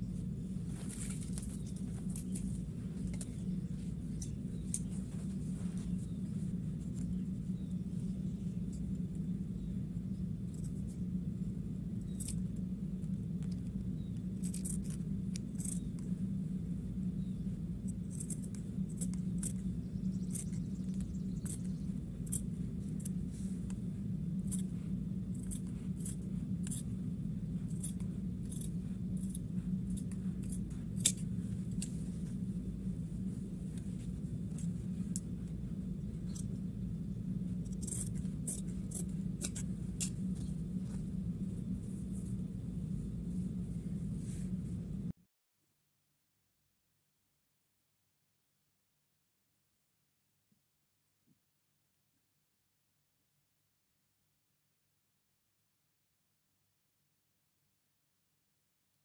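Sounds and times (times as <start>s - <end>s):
steady low hum: 0.0s - 45.2s
scissors snipping fabric: 25.3s - 26.9s, 27.7s - 32.3s, 37.6s - 41.0s.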